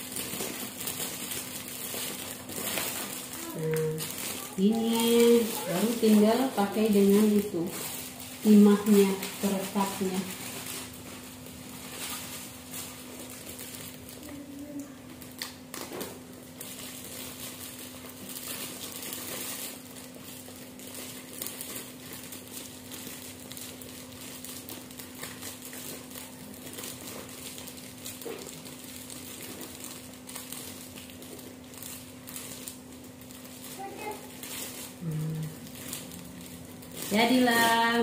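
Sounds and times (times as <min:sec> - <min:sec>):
plastic bag crinkling: 0:00.0 - 0:38.0
steady low hum: 0:24.2 - 0:38.0.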